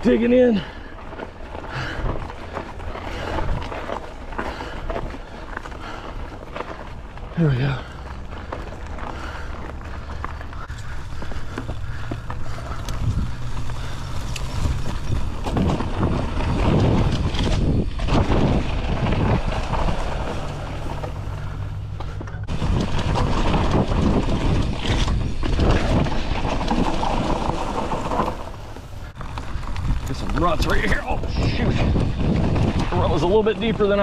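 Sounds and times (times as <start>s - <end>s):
bike tyres rolling over dirt: 0.0s - 34.0s
wind rushing over microphone: 3.1s - 3.9s, 10.7s - 21.7s, 22.4s - 34.0s.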